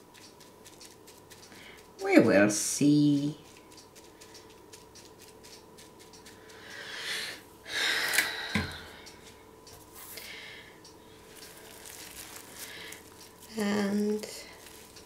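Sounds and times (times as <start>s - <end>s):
faint steady hum: 0.0s - 15.0s
handling rustles: 11.3s - 15.0s.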